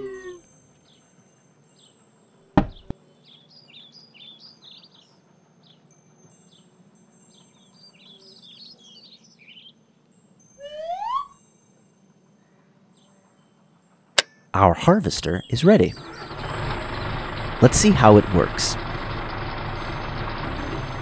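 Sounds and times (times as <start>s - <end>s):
part knocking into toy truck: 2.6s - 2.9s
cartoon birdsong chirps: 10.6s - 11.4s
rising whistle-like glide: 10.6s - 11.4s.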